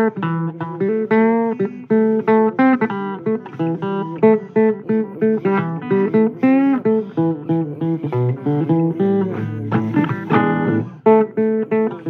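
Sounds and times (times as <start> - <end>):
blues guitar music: 0.0 - 12.0.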